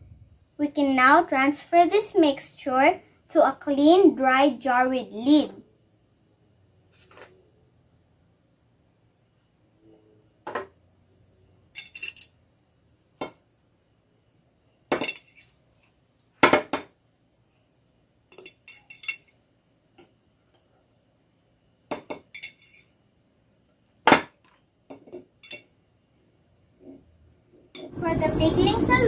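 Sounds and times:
metal tongs clinking on glass: 11.8 - 12.4, 18.3 - 19.4, 22.3 - 22.9, 25.4 - 25.7.

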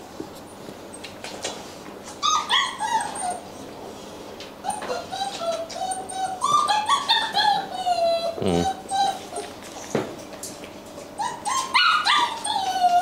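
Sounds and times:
puppies whining and whimpering: 2.1 - 9.9, 11.0 - 13.0.

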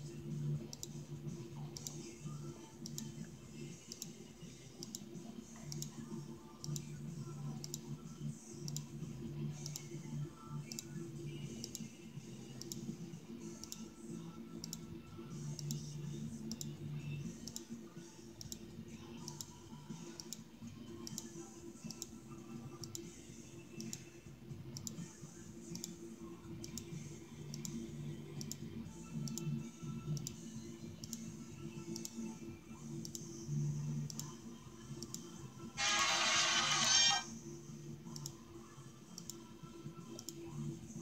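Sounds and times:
light rhythmic clicks: 0.6 - 8.0, 8.6 - 37.2, 38.0 - 38.4, 39.1 - 40.9.

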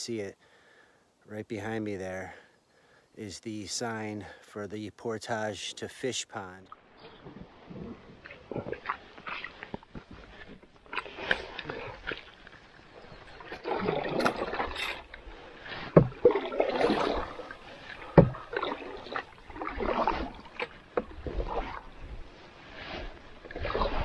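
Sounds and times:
paddle swishing through water: 5.7 - 24.0.

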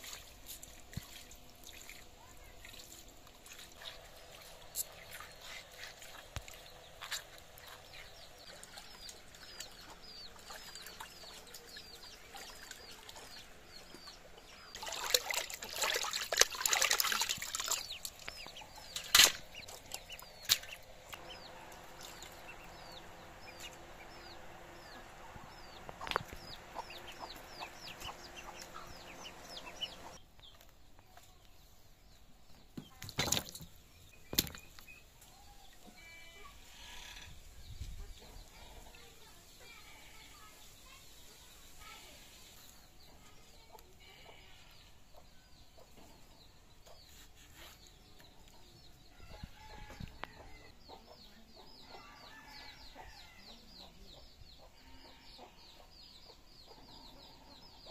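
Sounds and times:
water splashing and dripping: 0.0 - 13.4, 14.7 - 21.2
chickens clucking: 3.9 - 15.8, 17.1 - 30.2
small bird chirping: 17.4 - 31.5.

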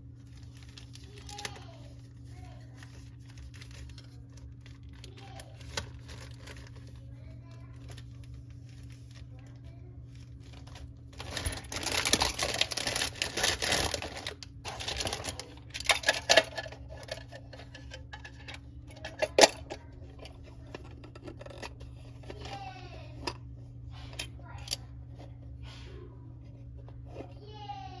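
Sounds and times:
plastic parts clattering: 2.8 - 7.0, 10.4 - 23.4.

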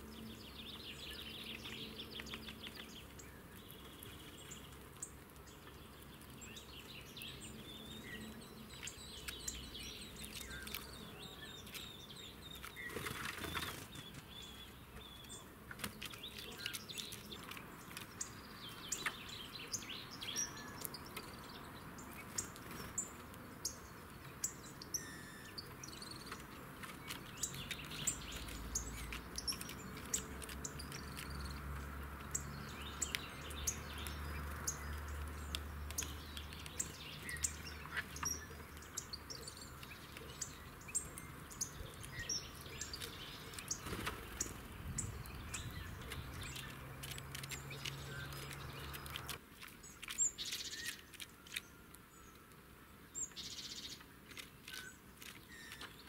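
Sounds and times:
birds pecking seeds on wood: 0.0 - 56.0
small birds chirping: 0.0 - 56.0
wings fluttering: 12.6 - 14.4, 42.8 - 51.6.

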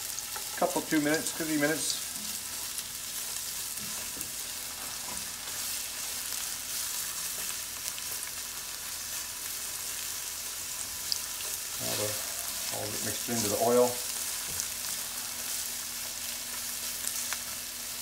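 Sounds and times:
vegetables sizzling in oil: 0.0 - 18.0
spatula scraping pan: 11.7 - 13.5.

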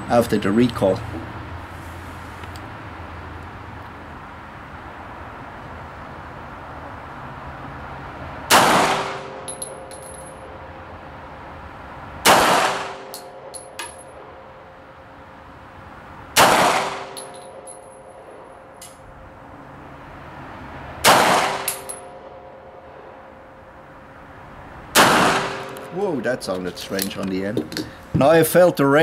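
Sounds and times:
brass cases clinking: 9.4 - 10.5, 17.2 - 18.1, 26.5 - 28.0
pistol shots echoing: 12.2 - 13.2, 16.4 - 17.6, 21.0 - 21.9, 25.0 - 25.9.

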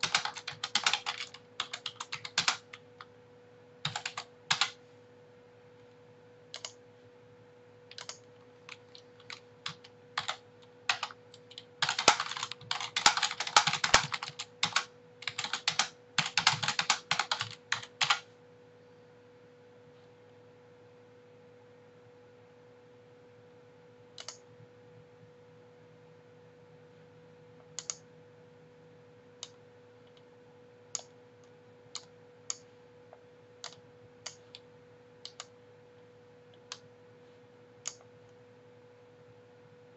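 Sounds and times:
keyboard typing: 0.0 - 3.1, 3.8 - 4.8, 6.5 - 6.8, 7.9 - 18.3, 24.2 - 24.5, 27.8 - 28.0, 30.9 - 32.7, 33.6 - 35.6, 37.8 - 38.1
faint steady hum: 0.0 - 39.9.

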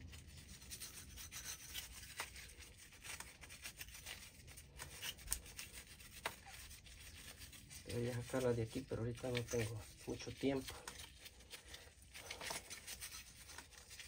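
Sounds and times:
scratching and rubbing: 0.0 - 14.0.

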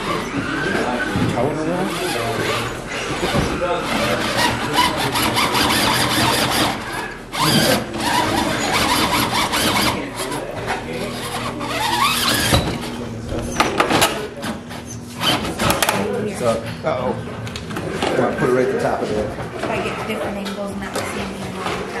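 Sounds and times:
toy car motor whining: 0.0 - 13.0
people talking: 0.0 - 14.8, 18.0 - 22.0.

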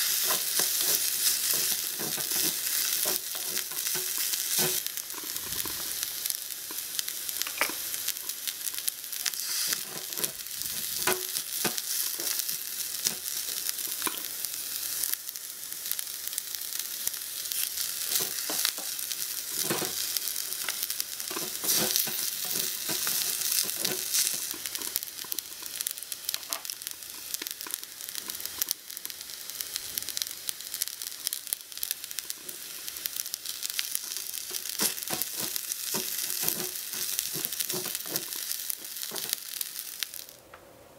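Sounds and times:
stir-fry sizzling in a wok: 0.0 - 40.4
wooden spatula scraping a pan: 0.1 - 5.9, 18.1 - 20.0, 20.6 - 25.8, 34.1 - 39.4.

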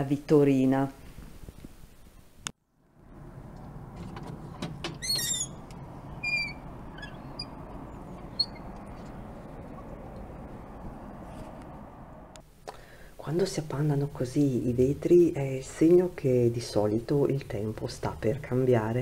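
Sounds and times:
small birds chirping: 5.0 - 9.8.

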